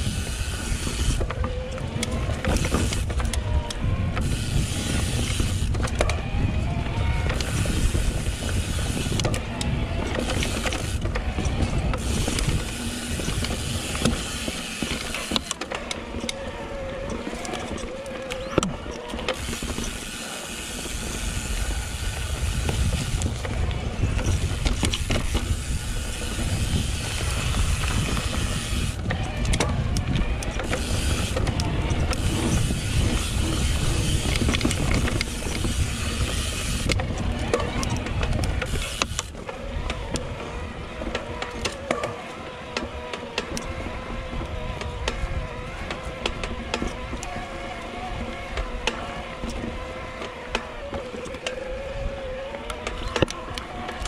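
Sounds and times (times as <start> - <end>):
bike rattles and knocks: 0.0 - 54.0
faint electric motor whine: 0.0 - 54.0
tyre roar on dirt: 0.0 - 54.0
wind buffeting microphone: 0.0 - 54.0.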